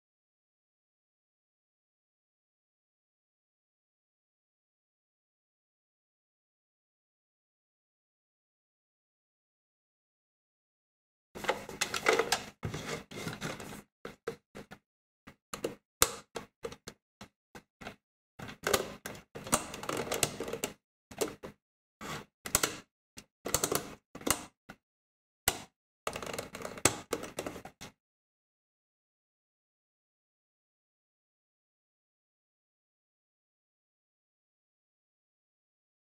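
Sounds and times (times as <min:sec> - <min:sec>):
plastic clicks and rattles: 0:11.4 - 0:14.8, 0:17.8 - 0:21.6, 0:23.5 - 0:24.5, 0:25.5 - 0:27.7.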